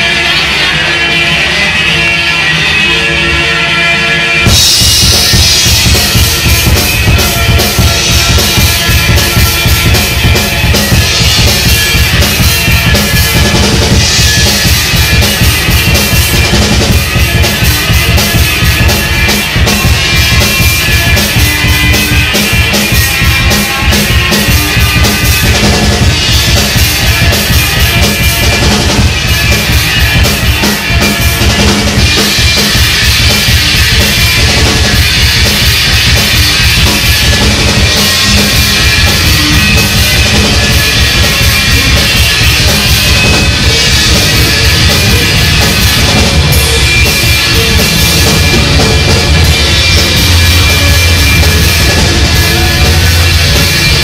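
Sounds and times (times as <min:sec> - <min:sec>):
drum kit: 0:00.0 - 0:54.0
instrumental rock band: 0:00.0 - 0:54.0.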